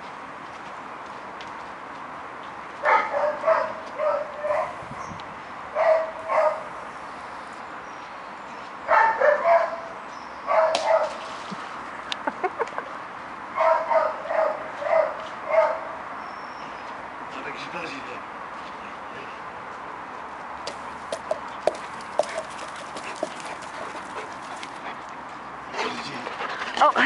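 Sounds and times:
dogs barking and yipping: 2.8s - 4.8s, 5.7s - 6.9s, 8.9s - 11.3s, 13.5s - 16.1s, 21.2s - 25.0s.

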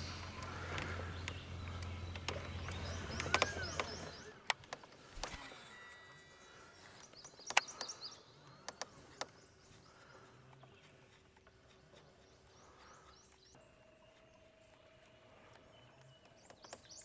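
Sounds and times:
sharp clicks: 0.0s - 5.7s, 7.0s - 9.6s
songbirds chirping: 0.0s - 17.0s.

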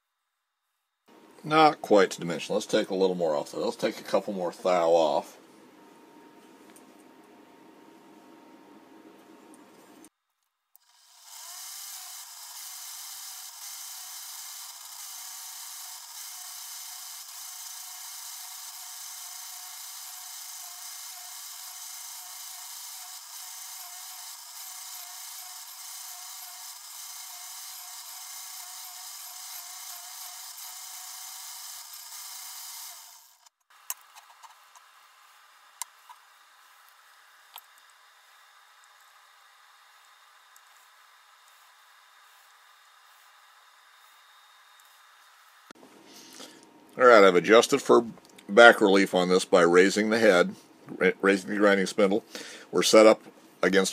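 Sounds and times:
grinder wheel grinding metal: 10.8s - 45.7s.

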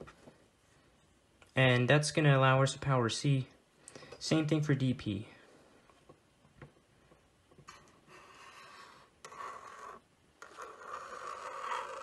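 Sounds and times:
marker pen drawing on paper: 8.1s - 12.0s.

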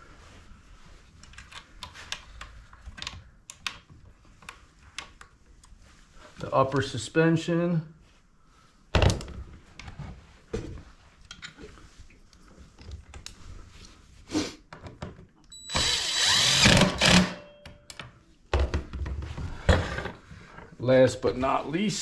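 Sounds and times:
cordless drill whining: 15.6s - 17.4s.

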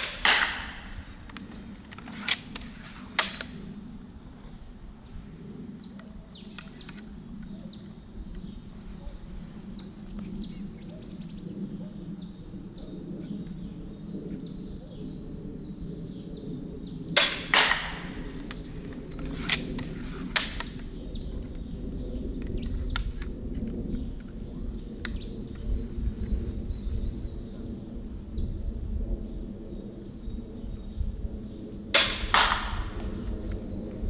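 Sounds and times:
crossbow firing snap: 0.0s - 0.9s, 2.2s - 3.6s, 17.2s - 18.2s, 19.4s - 20.8s, 32.0s - 33.2s
birds chirping: 0.0s - 34.0s.

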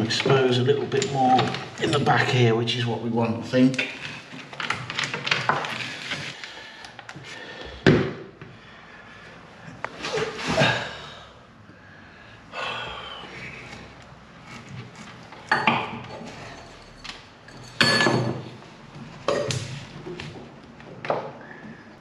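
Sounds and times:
tiles knocking and clattering: 4.0s - 6.4s, 15.0s - 21.9s.

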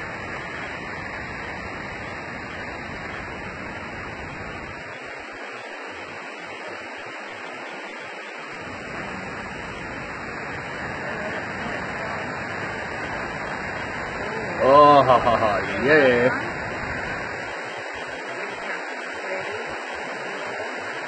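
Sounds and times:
storm wind rushing: 8.4s - 21.0s.

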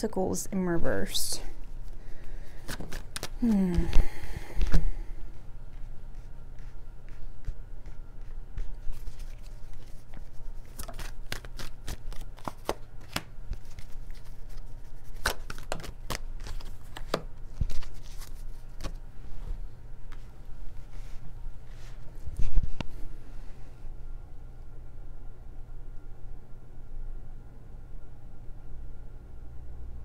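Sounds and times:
low hum: 0.0s - 30.0s
cards riffling: 2.5s - 4.9s, 7.4s - 19.0s.

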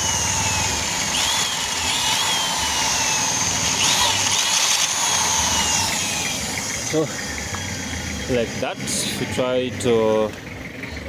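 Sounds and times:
electric drill boring metal: 0.0s - 8.7s.

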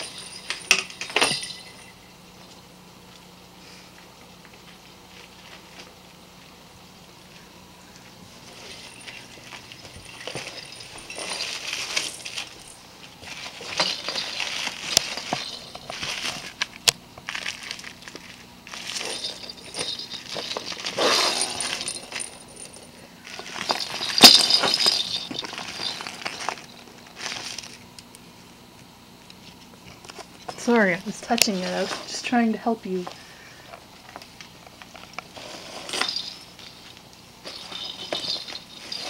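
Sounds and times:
clicks and clinks: 0.0s - 2.0s, 17.7s - 26.8s
plastic bag crinkling: 8.4s - 27.9s, 34.8s - 39.0s.

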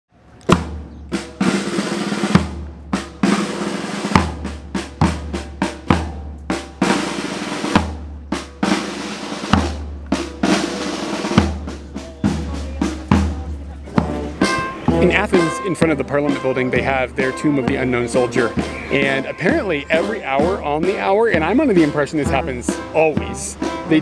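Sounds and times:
snare rolls and rimshots: 0.4s - 13.4s
heavy drum hits: 0.5s - 16.0s.

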